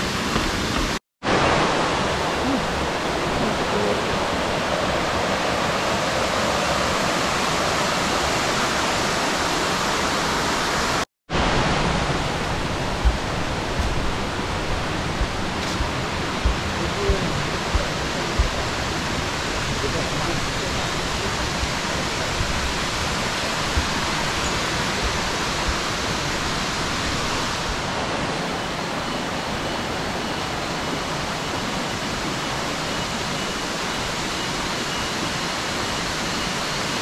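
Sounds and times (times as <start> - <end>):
stream water rushing: 0.0 - 37.0
soft low knocks: 12.9 - 18.7.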